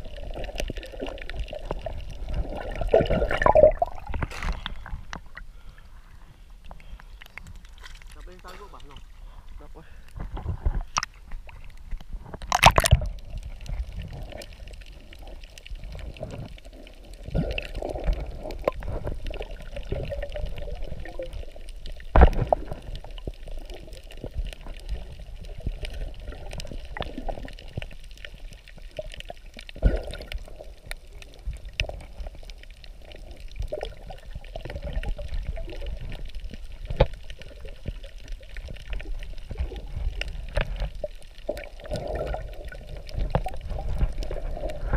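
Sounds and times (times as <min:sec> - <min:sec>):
underwater wash of moving water: 0:00.0 - 0:06.3, 0:10.2 - 0:44.9
sharp underwater clicks and knocks: 0:03.1 - 0:05.5, 0:10.1 - 0:14.5, 0:21.9 - 0:32.5, 0:34.6 - 0:44.9.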